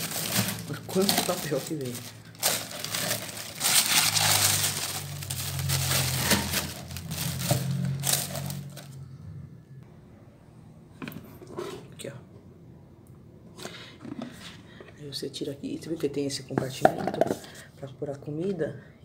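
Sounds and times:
paper crinkling and rustling: 0:00.0 - 0:09.0.

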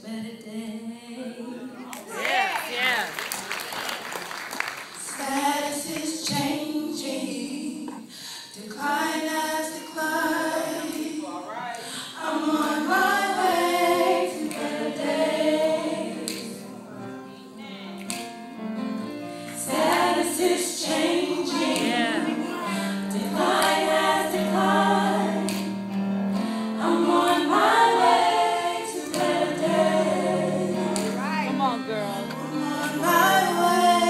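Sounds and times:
gospel choir singing: 0:04.5 - 0:34.0.

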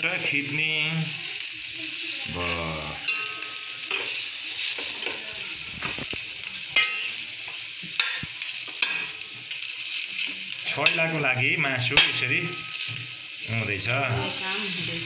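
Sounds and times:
meat sizzling in a pan: 0:00.0 - 0:15.0
metal spoon scraping a pan: 0:03.0 - 0:06.1, 0:06.7 - 0:07.2, 0:11.8 - 0:13.3, 0:14.0 - 0:15.0.

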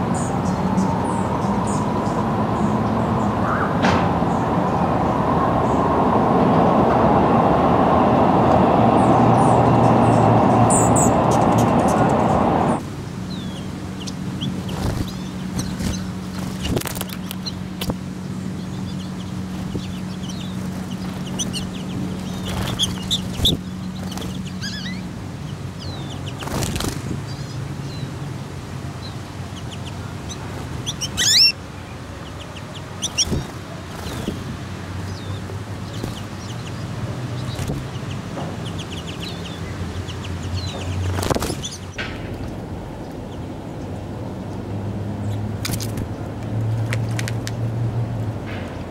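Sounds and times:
birds chirping and twittering: 0:00.0 - 0:07.0, 0:08.2 - 0:47.6
steady low hum: 0:00.0 - 0:46.4
wings fluttering: 0:14.0 - 0:25.1, 0:26.0 - 0:27.6, 0:29.4 - 0:31.6, 0:32.3 - 0:43.3, 0:45.6 - 0:47.6.

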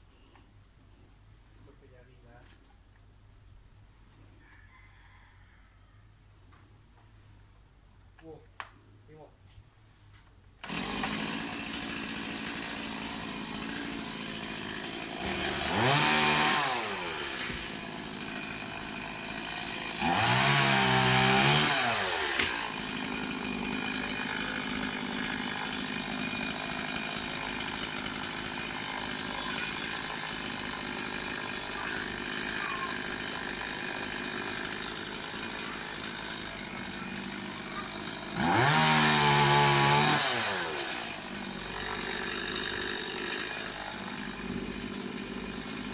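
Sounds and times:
chainsaw idling and revving: 0:10.6 - 0:45.9.

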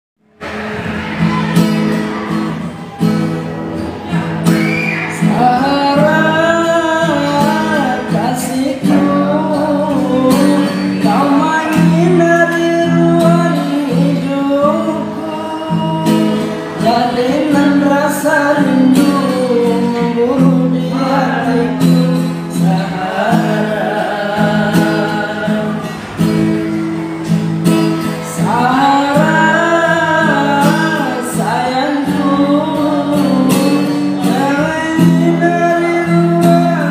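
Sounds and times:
acoustic guitar chords: 0:00.2 - 0:36.9
man singing: 0:03.9 - 0:26.8, 0:28.0 - 0:36.9.

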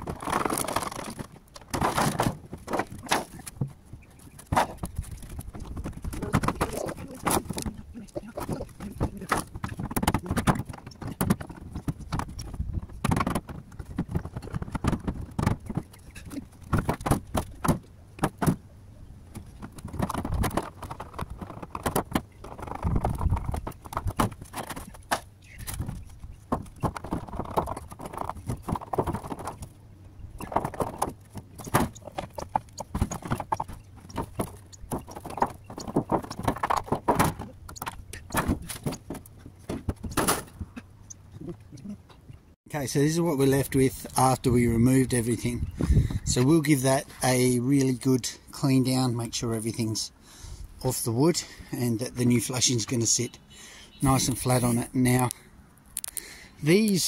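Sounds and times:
scraping: 0:00.0 - 0:18.6, 0:19.3 - 0:42.2
roof tiles clacking: 0:00.0 - 0:49.0.

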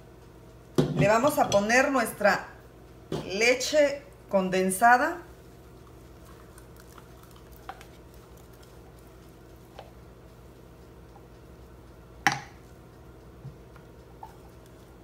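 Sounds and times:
steady low hum: 0:00.0 - 0:15.0
liquid pouring and scraping: 0:05.9 - 0:09.4.

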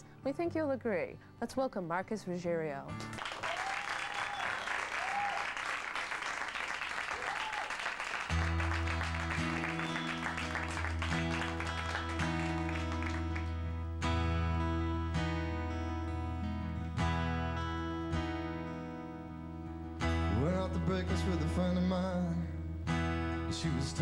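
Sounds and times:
audience applauding and cheering: 0:03.1 - 0:13.7.

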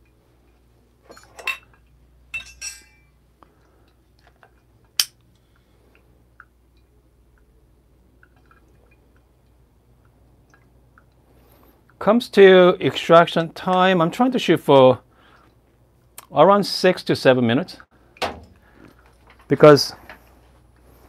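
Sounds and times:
glass carafes clinking: 0:01.1 - 0:03.2.

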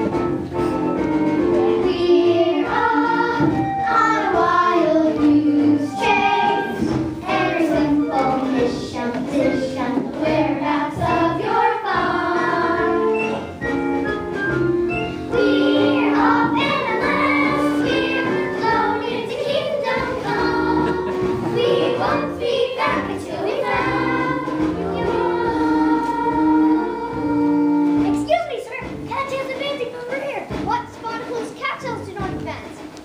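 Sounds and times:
instrumental backing: 0:00.0 - 0:33.0
children's chorus singing: 0:01.4 - 0:13.5, 0:15.3 - 0:28.0.

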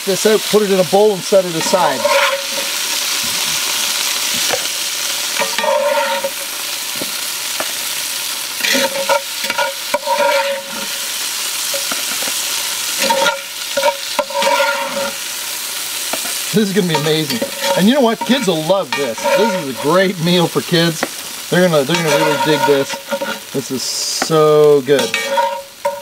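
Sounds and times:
chicken sizzling in grease: 0:00.0 - 0:26.0
spatula scraping a pot: 0:01.5 - 0:03.8, 0:05.3 - 0:06.6, 0:08.6 - 0:15.3, 0:16.1 - 0:20.2, 0:21.7 - 0:23.6, 0:25.0 - 0:26.0.

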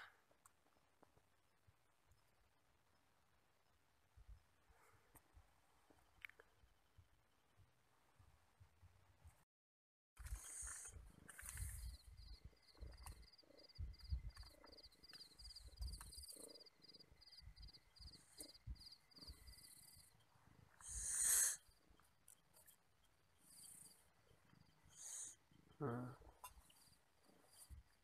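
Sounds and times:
cricket chirping: 0:01.2 - 0:04.6, 0:10.3 - 0:28.0.

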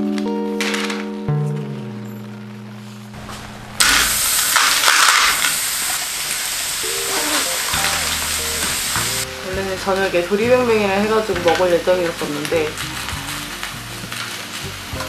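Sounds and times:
fish sizzling in hot oil: 0:03.5 - 0:10.5, 0:11.1 - 0:15.0.

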